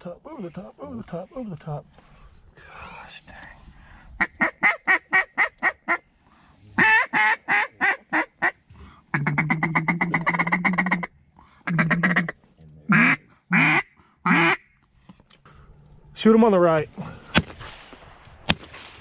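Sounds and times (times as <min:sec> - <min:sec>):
duck call chattering feed call: 0:04.2 - 0:06.0, 0:06.8 - 0:11.1, 0:11.7 - 0:14.7
duck call quacks: 0:04.2 - 0:06.0, 0:06.8 - 0:11.1, 0:11.7 - 0:14.7.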